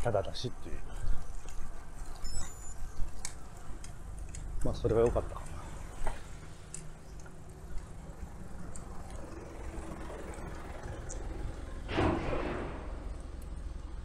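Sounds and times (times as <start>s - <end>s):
road traffic rumble: 0.0s - 14.0s
vehicle passing: 5.0s - 14.0s.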